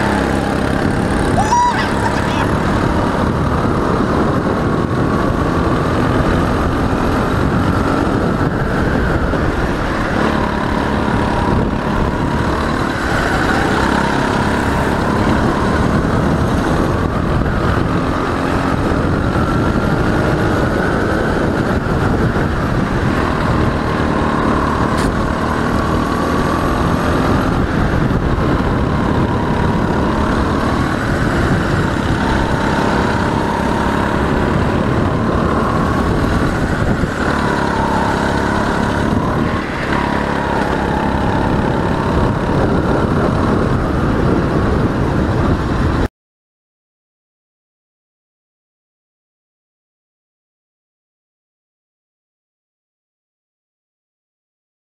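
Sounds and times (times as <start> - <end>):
go-kart engine revving: 0.0 - 46.1
wind and road noise: 0.0 - 46.1.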